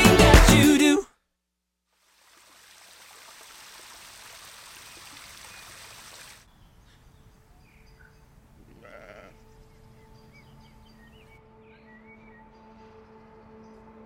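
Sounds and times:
music track: 0.0s - 1.0s
faint outdoor ambience: 2.1s - 14.0s
waterfall splashing: 2.2s - 6.4s.

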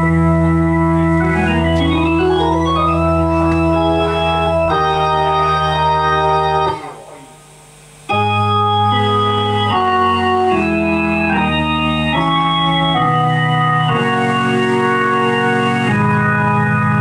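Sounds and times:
low bass line: 0.0s - 7.2s
electric organ chords: 0.0s - 17.0s.

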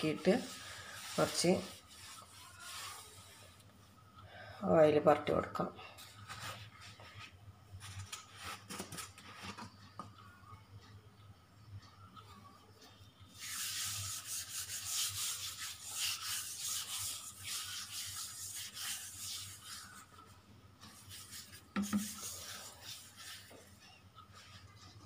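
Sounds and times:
hand rubbing countertop: 0.0s - 3.4s, 13.4s - 20.2s, 20.8s - 24.6s.

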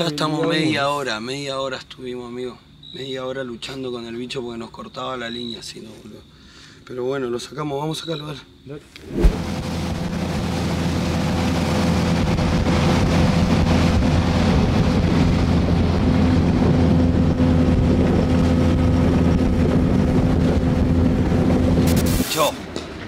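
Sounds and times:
water noise: 9.0s - 22.5s
wind noise: 9.0s - 23.0s
outboard motor running: 9.4s - 21.9s.

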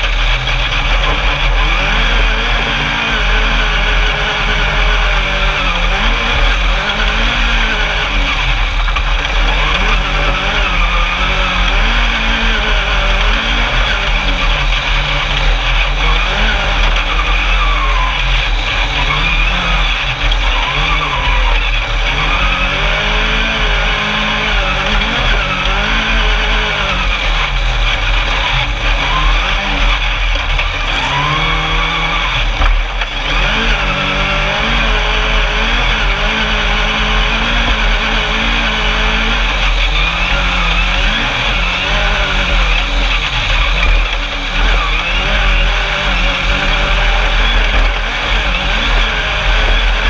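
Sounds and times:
constant rushing noise: 0.0s - 50.0s
race buggy engine revving: 0.0s - 50.0s.

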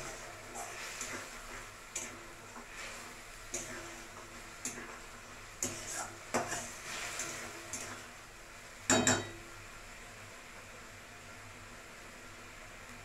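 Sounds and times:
metal spatula scraping paste: 5.6s - 8.0s.

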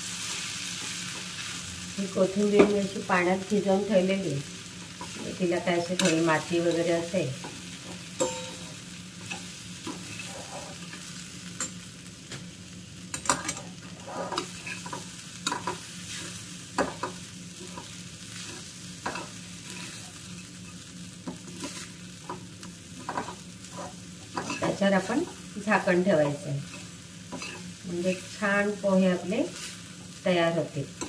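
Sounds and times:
soft sizzle: 0.0s - 31.0s
spoon clinking on pan: 8.2s - 8.6s
spoon scraping pan: 8.2s - 11.1s, 13.3s - 20.1s, 26.2s - 27.7s.

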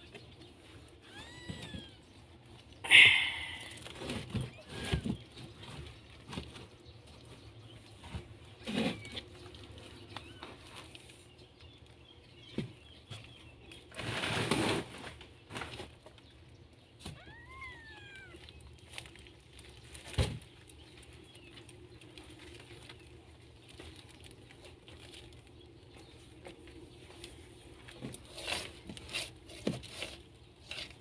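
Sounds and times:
kitten mewing: 2.9s - 3.8s.

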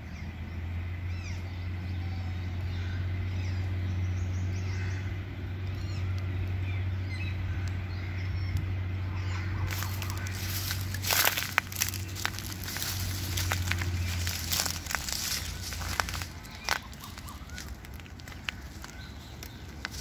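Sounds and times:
steady low rumble: 0.0s - 20.0s
dry leaves crackling and crunching: 9.2s - 20.0s.

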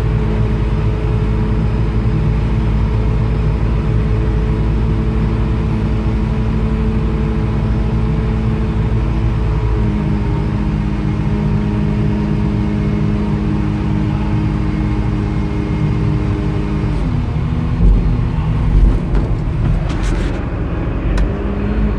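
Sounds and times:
diesel engine running: 0.0s - 21.9s
low thumps: 17.2s - 21.4s.

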